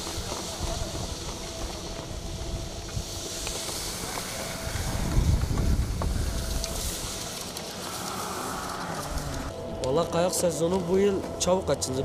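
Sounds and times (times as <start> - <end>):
wind rumbling on microphone: 0.0 - 8.0
skis scraping over packed snow: 0.0 - 9.5.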